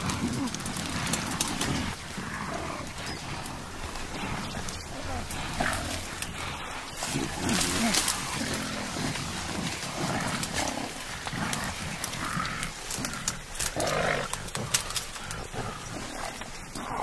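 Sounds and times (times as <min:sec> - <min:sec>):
low animal grunts: 0:00.0 - 0:17.0
bamboo stems snapping: 0:07.0 - 0:08.7, 0:09.3 - 0:15.5.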